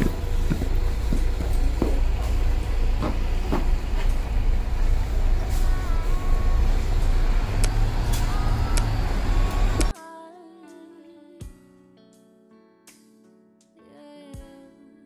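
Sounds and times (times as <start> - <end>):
bus engine rumble: 0.0 - 9.9
sharp clicks: 7.6 - 9.9.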